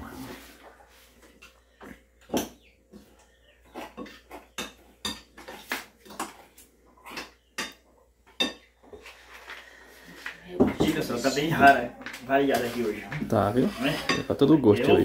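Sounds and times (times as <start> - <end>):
metal spoons clinking on pots: 7.2 - 8.6, 13.6 - 15.0.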